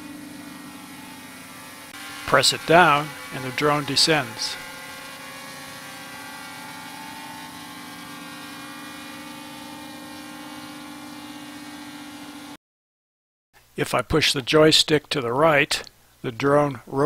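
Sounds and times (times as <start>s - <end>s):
drone propellers humming: 0.0s - 12.6s.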